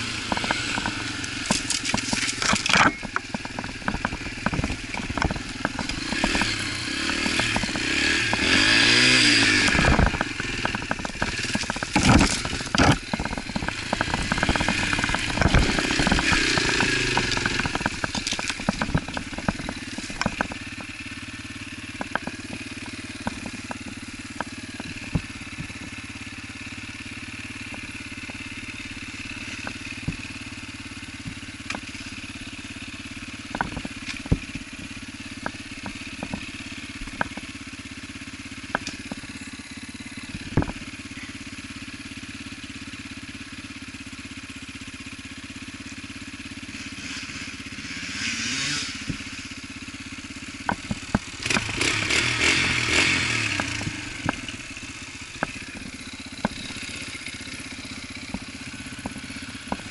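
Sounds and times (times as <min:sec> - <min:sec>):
dirt bike engine: 0:00.0 - 0:59.9
sharp clicks and knocks: 0:00.2 - 0:21.1, 0:21.9 - 0:26.0, 0:29.2 - 0:30.4, 0:31.2 - 0:32.2, 0:33.4 - 0:37.6, 0:38.6 - 0:39.4, 0:40.2 - 0:40.9, 0:50.6 - 0:59.9.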